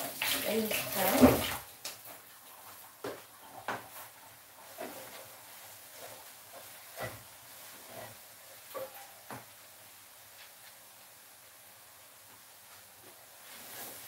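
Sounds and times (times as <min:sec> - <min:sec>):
kitchen sink noise: 0:00.0 - 0:07.9
wooden spoon stirring in pot: 0:00.0 - 0:11.1.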